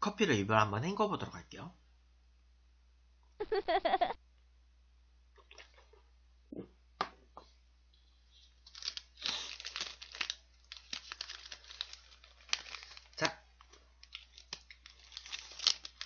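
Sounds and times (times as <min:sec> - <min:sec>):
plastic wrapper crinkling and tearing: 0:08.3 - 0:16.0.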